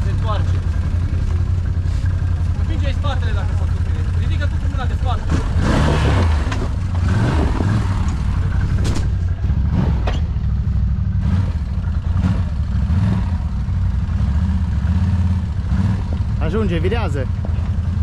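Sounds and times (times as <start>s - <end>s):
quad bike engine running: 0.0s - 18.0s
clattering knocks: 6.3s - 10.2s.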